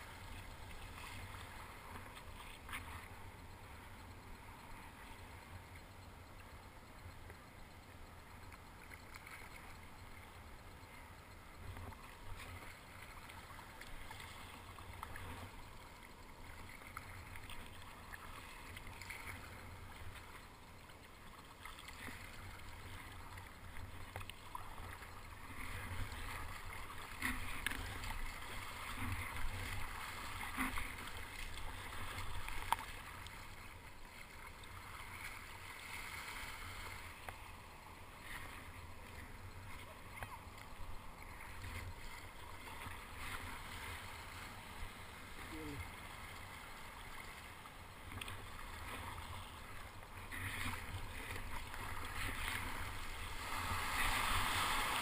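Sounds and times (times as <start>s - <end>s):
water sloshing against hull: 0.0s - 55.0s
kayak paddle strokes splashing: 8.5s - 55.0s.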